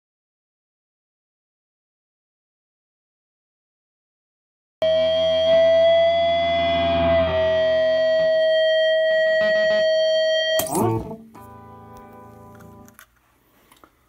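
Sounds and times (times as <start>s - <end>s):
distorted electric guitar: 4.8s - 13.0s.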